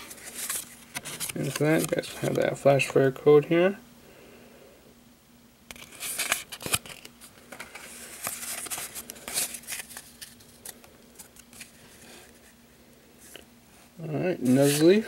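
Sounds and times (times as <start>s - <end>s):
trading cards being shuffled: 0.0s - 2.4s, 5.7s - 12.4s, 14.4s - 15.0s.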